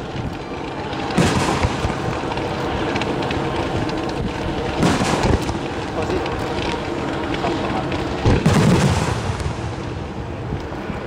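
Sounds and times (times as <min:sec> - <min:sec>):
steady rumbling noise: 0:00.0 - 0:11.0
firework shell bursts booming: 0:04.8 - 0:05.6, 0:08.2 - 0:09.8.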